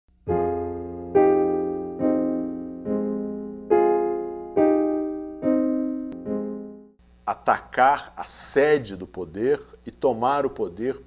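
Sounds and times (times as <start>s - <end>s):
slow piano chords: 0.2s - 7.0s.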